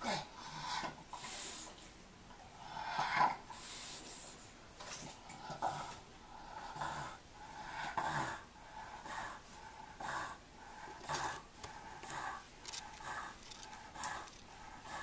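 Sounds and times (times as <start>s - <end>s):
dog breathing heavily with snorts: 5.4s - 15.0s.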